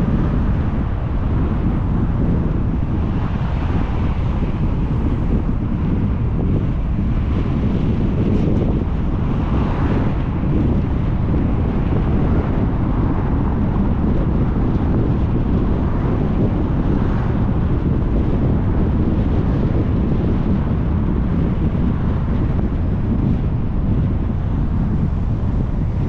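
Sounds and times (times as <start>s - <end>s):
car driving on paved road: 0.0s - 26.0s
wind noise on microphone: 0.0s - 26.0s.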